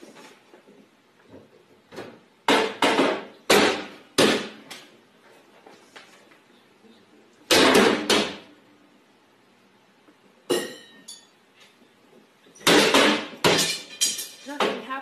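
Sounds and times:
cabinet doors slamming: 7.5s - 8.4s, 12.6s - 13.6s.

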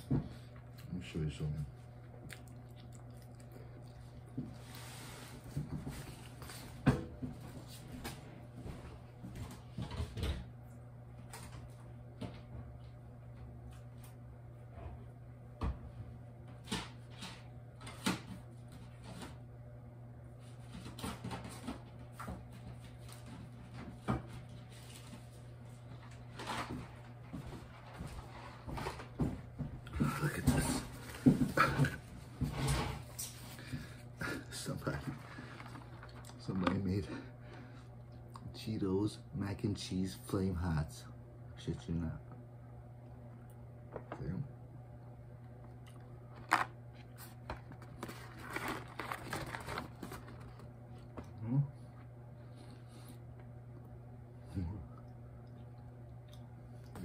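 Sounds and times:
steady low hum: 0.0s - 57.0s
cardboard box rustling: 47.4s - 50.7s.

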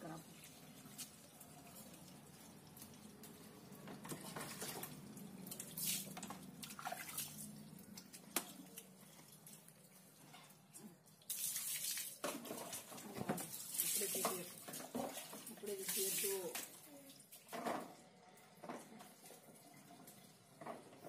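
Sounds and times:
water splashing on concrete floor: 0.4s - 10.0s, 11.1s - 17.8s.

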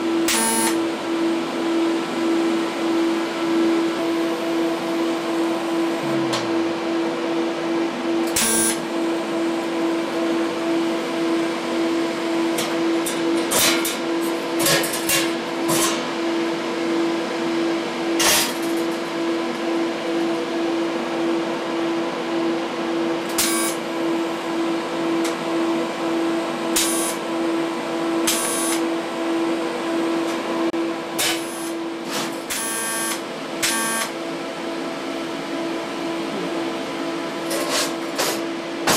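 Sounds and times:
welder hum: 0.0s - 10.5s.

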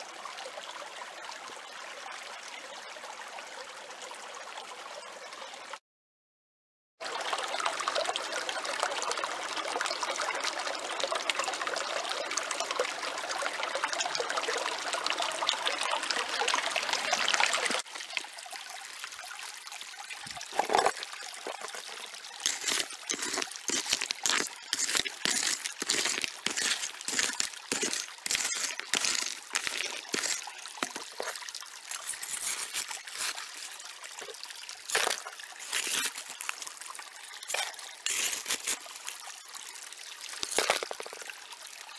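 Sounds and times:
creek running over stones: 7.0s - 41.9s
hand shovel digging gravel: 20.6s - 21.8s, 22.4s - 34.3s, 34.9s - 36.7s, 37.4s - 39.1s, 40.4s - 41.2s.

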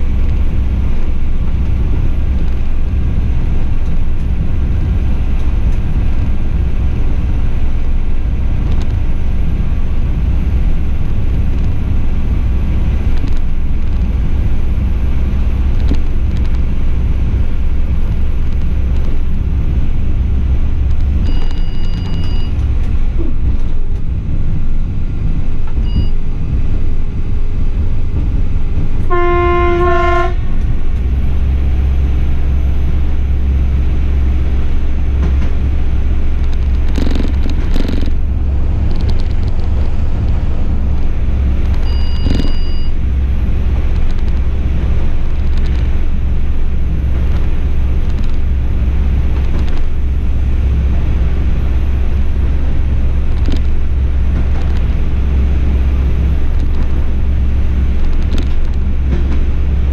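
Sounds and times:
railcar rumbling on track: 0.0s - 59.9s
train horn blast: 29.0s - 30.6s.

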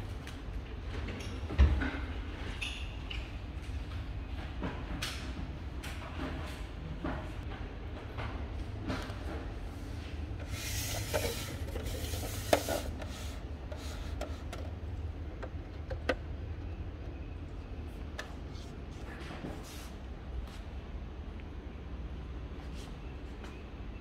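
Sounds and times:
rubbing and handling noises: 9.9s - 14.8s.

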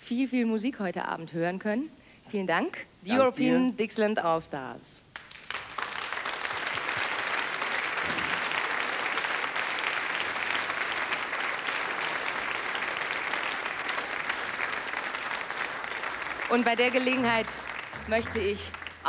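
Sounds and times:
audience applauding: 5.1s - 19.0s.

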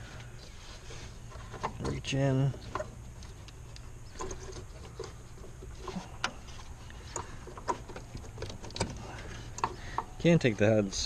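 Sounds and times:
hand clicking and tapping plastic parts: 1.3s - 10.2s.

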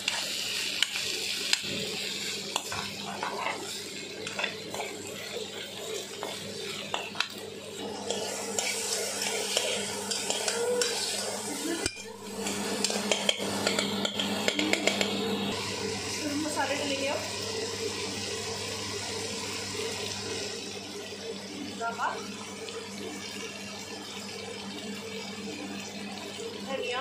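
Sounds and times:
vegetables sizzling in oil: 0.0s - 27.0s
metal spoon scraping a pan: 2.6s - 7.4s, 8.0s - 15.1s.

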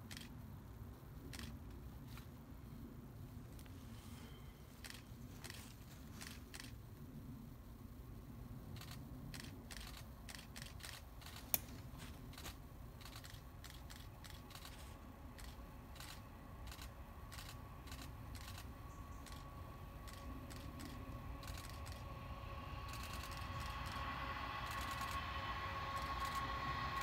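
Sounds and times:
low rumble: 0.0s - 27.0s
diesel railcar whine: 8.8s - 27.0s
faint clicks: 15.4s - 22.1s.

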